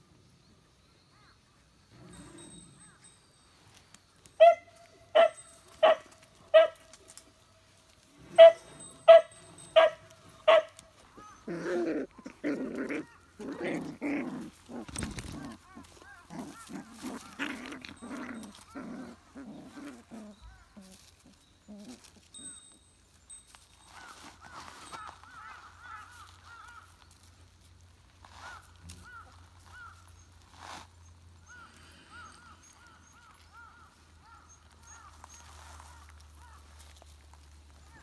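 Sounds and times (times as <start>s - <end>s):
puppies vocalizing while wrestling: 7.9s - 22.8s, 23.8s - 38.0s.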